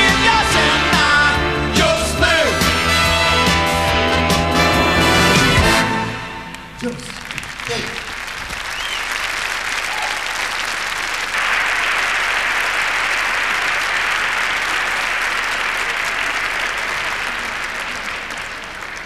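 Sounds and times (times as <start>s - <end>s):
audience applauding: 5.2s - 19.0s.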